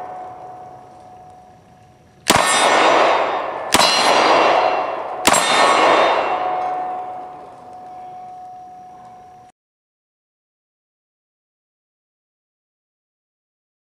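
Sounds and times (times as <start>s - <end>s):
steel targets ringing: 0.0s - 9.5s
pistol shots: 2.2s - 8.4s.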